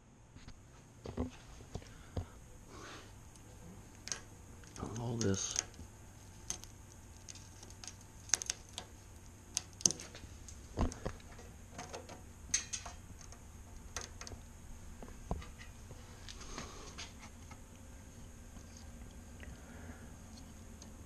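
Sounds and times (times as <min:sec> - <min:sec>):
wiring clicking against metal frame: 0:03.3 - 0:14.5.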